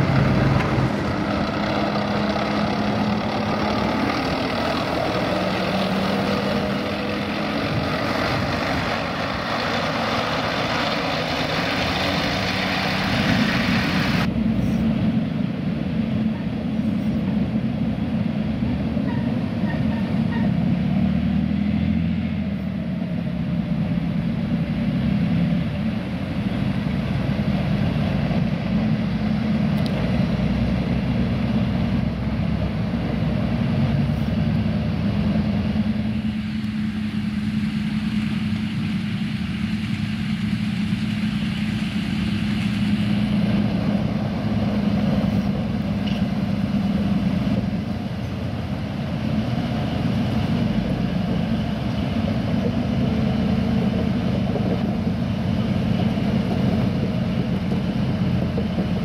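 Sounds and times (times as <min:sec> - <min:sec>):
heavy vehicle engine running: 0:00.0 - 0:59.0.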